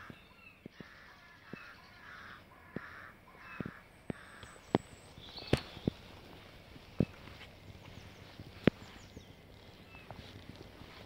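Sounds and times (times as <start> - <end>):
bird cawing: 0.0 - 6.0.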